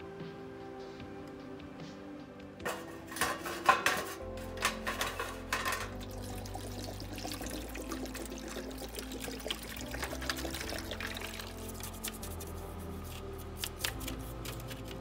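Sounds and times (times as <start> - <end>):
background music: 0.0 - 15.0
parts clattering into metal tray: 2.6 - 6.0
water pouring onto plastic parts: 4.5 - 12.6.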